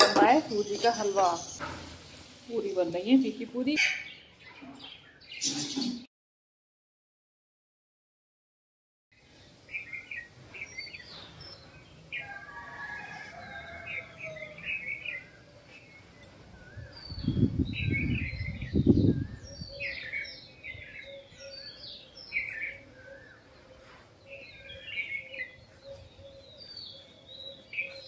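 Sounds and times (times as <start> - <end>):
birds chirping and whistling: 0.2 - 2.0, 3.3 - 6.0, 9.2 - 28.0.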